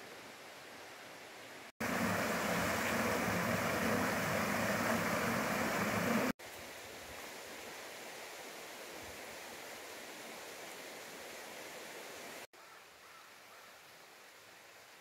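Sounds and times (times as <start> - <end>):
faint steady hiss: 0.0 - 15.0
waterfall splashing over rocks: 1.8 - 6.4.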